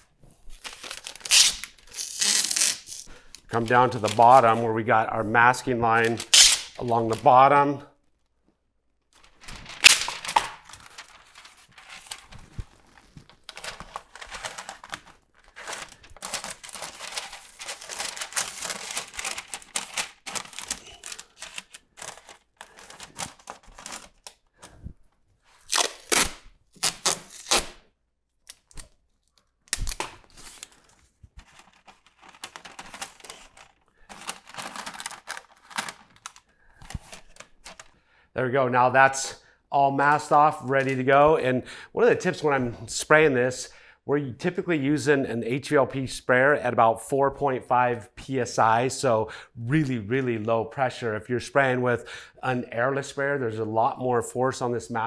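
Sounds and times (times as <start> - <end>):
masking paper crinkling: 0.4 - 8.3, 9.0 - 24.8, 28.5 - 38.0
paper tearing: 0.6 - 3.1, 6.0 - 7.2, 9.2 - 12.4, 13.0 - 24.3, 25.6 - 27.8.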